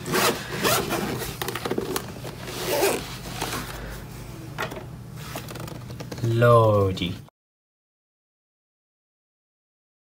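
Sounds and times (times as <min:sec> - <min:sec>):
zipper being pulled open: 0:00.0 - 0:03.2.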